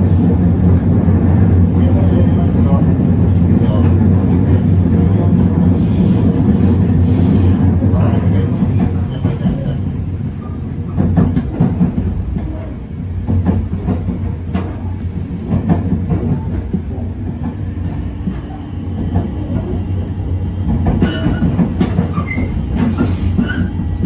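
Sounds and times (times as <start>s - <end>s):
train interior low rumble: 0.0s - 24.0s.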